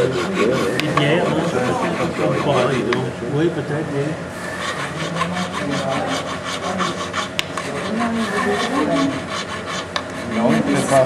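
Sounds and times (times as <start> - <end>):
file rasping on metal: 0.0 - 3.5, 4.3 - 11.0.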